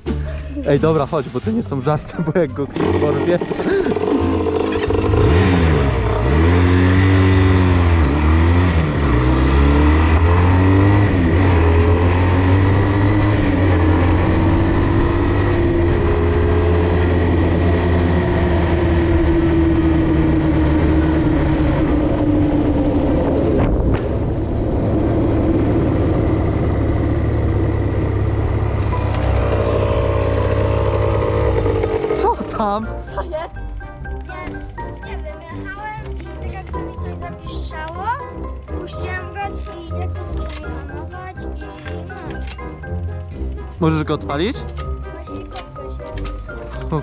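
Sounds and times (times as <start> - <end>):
quad bike engine revving: 2.6 - 35.8.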